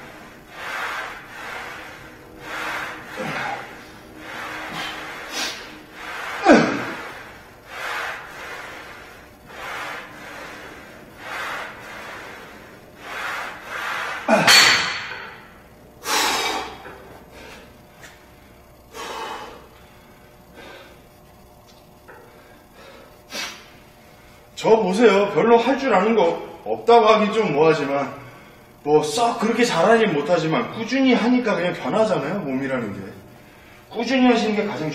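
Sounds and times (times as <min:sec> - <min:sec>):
man breathing hard: 0:00.0 - 0:21.2, 0:22.2 - 0:24.5
man straining breath: 0:00.6 - 0:12.5, 0:16.0 - 0:17.8, 0:18.9 - 0:21.1.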